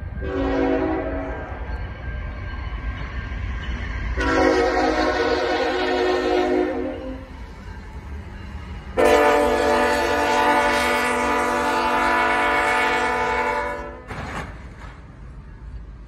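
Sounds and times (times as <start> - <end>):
passing train rumble: 0.0 - 16.0
train air horn blast: 0.2 - 1.5, 4.2 - 7.3, 9.0 - 14.2.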